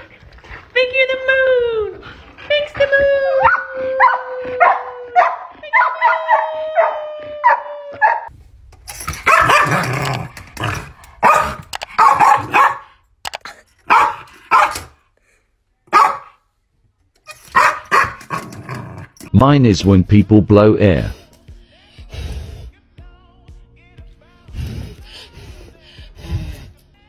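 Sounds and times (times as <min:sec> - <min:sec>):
dog howling: 0:02.8 - 0:08.3
small dog barking: 0:03.5 - 0:08.3, 0:09.2 - 0:09.9, 0:11.2 - 0:12.9, 0:13.9 - 0:14.9, 0:15.9 - 0:16.4, 0:17.5 - 0:18.2.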